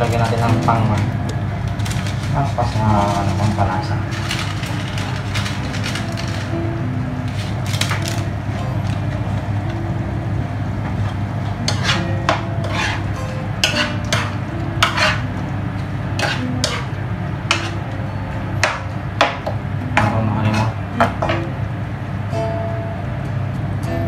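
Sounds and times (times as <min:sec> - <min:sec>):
pork sizzling: 0:00.0 - 0:09.4, 0:11.6 - 0:15.4, 0:16.0 - 0:17.9
utensil scraping a frying pan: 0:11.6 - 0:15.3, 0:16.1 - 0:17.8, 0:20.0 - 0:21.4.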